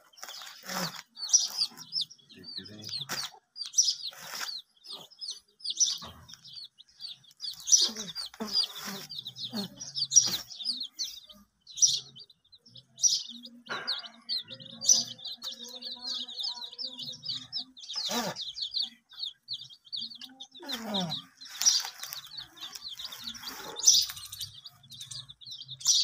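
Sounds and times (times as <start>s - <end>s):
chicks peeping: 0.0s - 26.0s.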